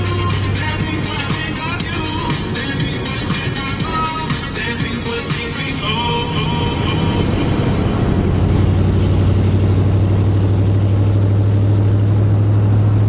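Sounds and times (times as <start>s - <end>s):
music: 0.0s - 10.0s
car engine and road noise: 0.0s - 13.0s.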